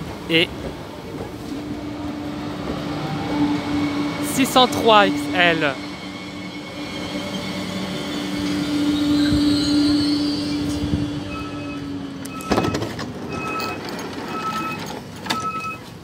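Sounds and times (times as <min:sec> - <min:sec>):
train electrical hum: 0:00.0 - 0:14.3
door warning beeps: 0:11.2 - 0:15.8
sliding door opening clunk: 0:11.4 - 0:15.7.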